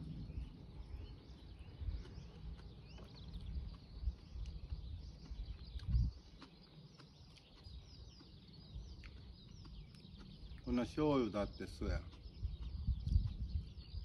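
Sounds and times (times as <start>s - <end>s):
low rumble: 0.0s - 6.2s
small birds chirping: 0.0s - 14.0s.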